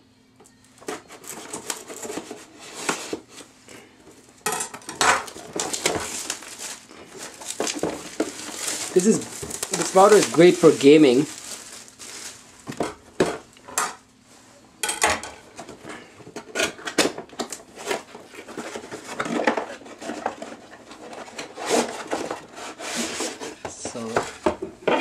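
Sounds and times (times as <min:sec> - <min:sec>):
cardboard rubbing and scraping: 0:05.4 - 0:12.3, 0:17.8 - 0:23.6.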